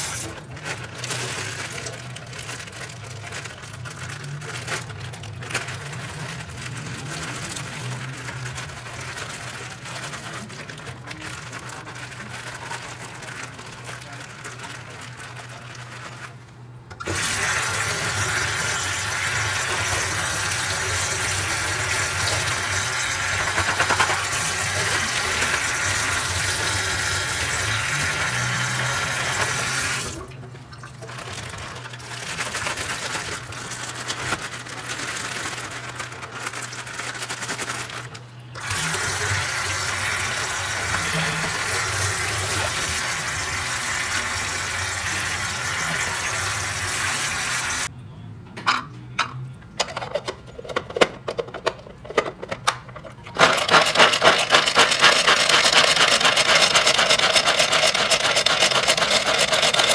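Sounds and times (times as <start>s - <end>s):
water running from a tap: 17.0s - 35.3s, 38.6s - 47.9s, 53.4s - 59.9s.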